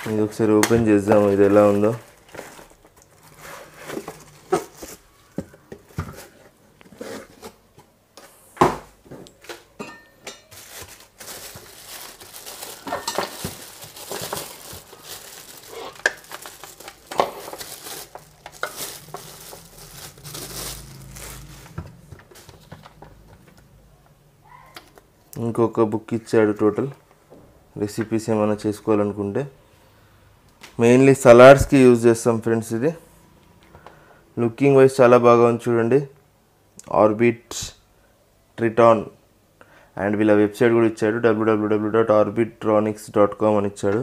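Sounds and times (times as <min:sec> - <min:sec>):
plastic bag crinkling: 0:00.0 - 0:05.4, 0:10.3 - 0:23.6.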